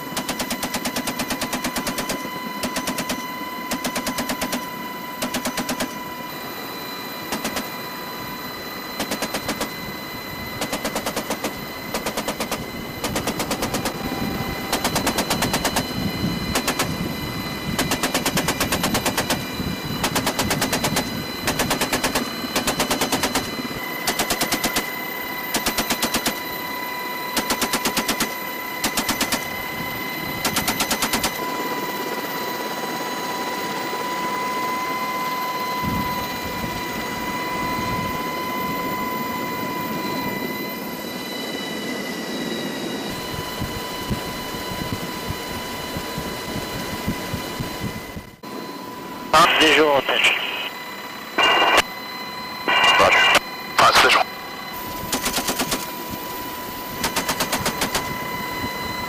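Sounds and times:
helicopter engine and rotor noise: 0:00.0 - 0:59.0
machine gun bursts: 0:20.0 - 0:23.5, 0:55.1 - 0:55.9, 0:57.0 - 0:58.0.

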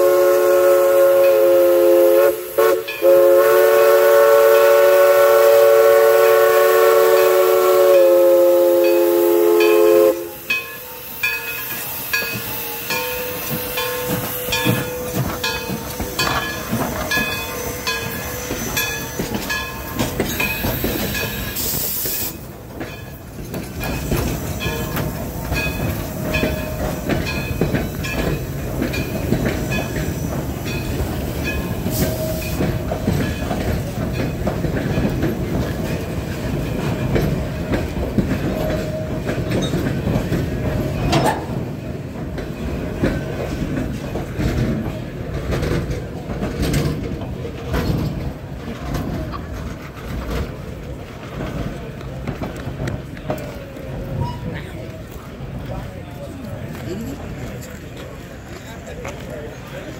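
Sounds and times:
steam locomotive whistle: 0:00.0 - 0:19.6, 0:29.6 - 0:33.2
steam hiss: 0:00.0 - 0:42.1
train cars clattering past: 0:00.0 - 0:59.9.

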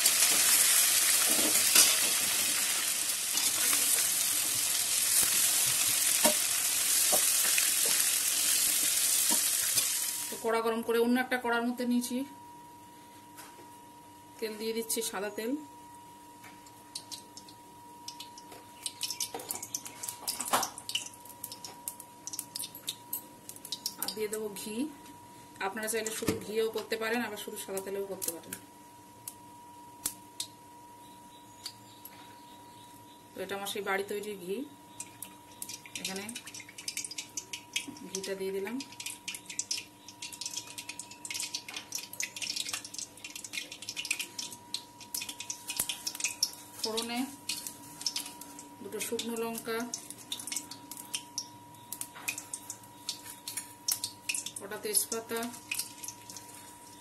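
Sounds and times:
oil crackling and popping: 0:00.0 - 0:10.4, 0:16.9 - 0:24.2, 0:34.9 - 0:57.0.

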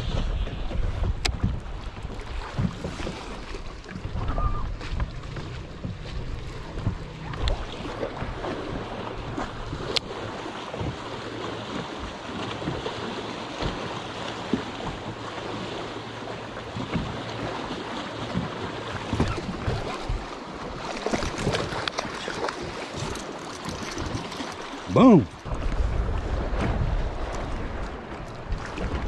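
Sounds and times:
wind buffeting microphone: 0:00.0 - 0:11.1, 0:18.3 - 0:29.0
water slapping against boat hull: 0:00.0 - 0:29.0.

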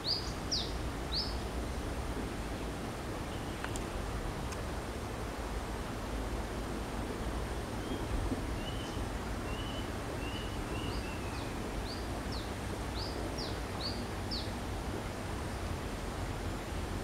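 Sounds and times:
bird chirping: 0:00.0 - 0:01.4, 0:07.8 - 0:14.5
background hiss: 0:00.0 - 0:17.0.

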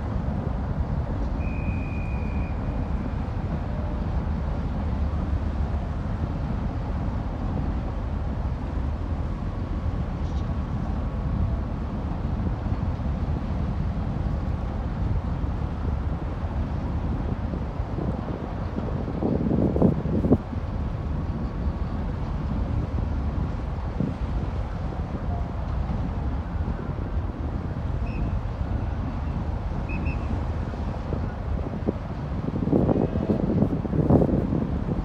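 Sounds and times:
ship machinery rumble: 0:00.0 - 0:35.0
short high whistle tone: 0:01.4 - 0:02.9, 0:28.0 - 0:28.4, 0:29.8 - 0:30.4
wind buffeting the microphone: 0:02.4 - 0:35.0.

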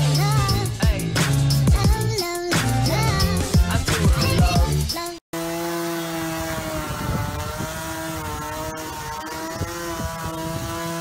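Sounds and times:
electric motor whine: 0:05.4 - 0:11.0.

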